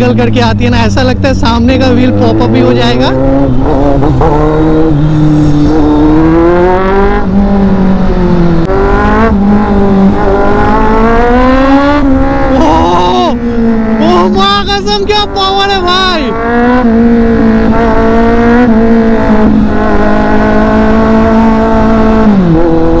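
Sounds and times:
motorcycle accelerating through gears: 0:00.0 - 0:14.3, 0:16.1 - 0:23.0.

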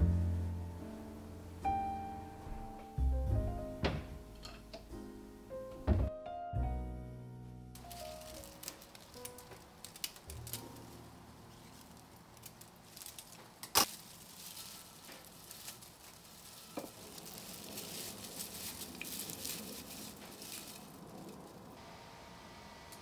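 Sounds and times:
dried stems rustling: 0:07.7 - 0:21.8.

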